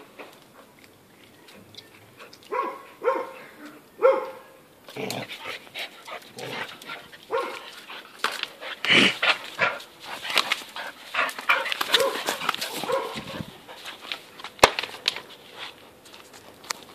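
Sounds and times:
dogs barking and yipping: 0:02.2 - 0:04.6, 0:05.4 - 0:14.2
dogs scuffling: 0:04.9 - 0:16.9.

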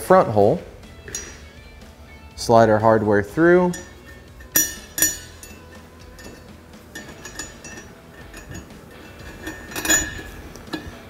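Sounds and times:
bolts clinking against steel tube: 0:01.1 - 0:01.6, 0:03.6 - 0:11.0.

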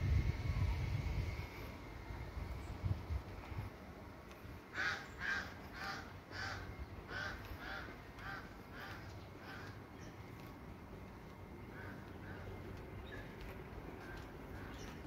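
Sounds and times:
bird calling: 0:04.7 - 0:10.5, 0:11.6 - 0:15.0.

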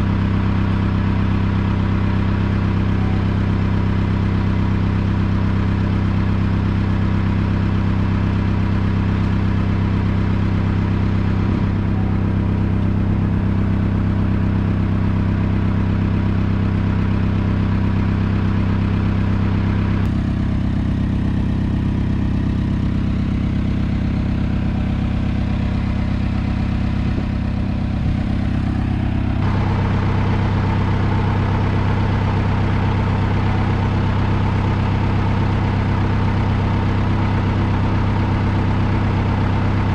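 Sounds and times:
engine idling: 0:00.0 - 0:39.9.

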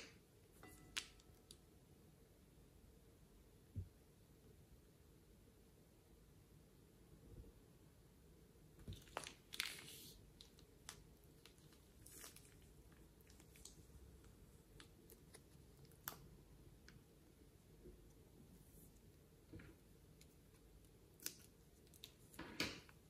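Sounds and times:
slime squelching: 0:08.8 - 0:17.5.

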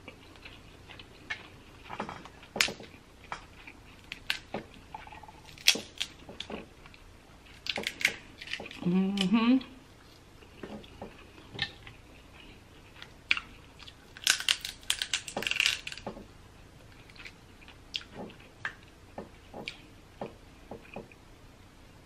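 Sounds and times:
crab shells cracking: 0:04.0 - 0:04.6, 0:05.5 - 0:06.5, 0:07.5 - 0:08.8, 0:13.0 - 0:16.1.

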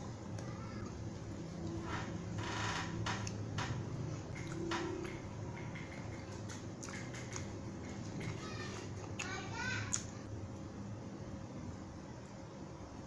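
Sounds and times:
chewing: 0:06.2 - 0:10.7
wet mouth clicks and smacks: 0:09.9 - 0:10.2.

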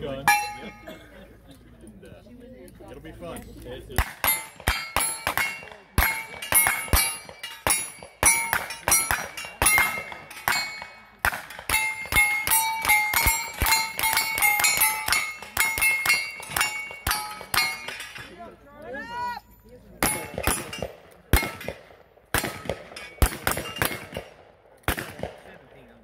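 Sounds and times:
steel targets ringing: 0:00.0 - 0:01.2, 0:04.0 - 0:18.4, 0:20.0 - 0:21.7
gunshots: 0:04.0 - 0:17.9, 0:20.0 - 0:25.8.

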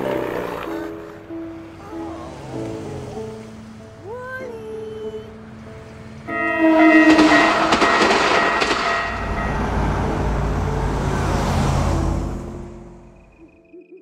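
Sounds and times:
train rushing past: 0:05.7 - 0:13.2
steady held tones: 0:06.3 - 0:11.3
sharp train clacks: 0:06.3 - 0:11.8.

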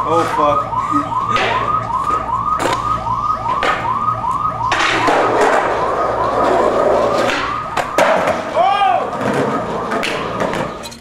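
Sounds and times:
siren whooping: 0:00.0 - 0:10.9
loud rolling rush of noise: 0:02.0 - 0:10.8.

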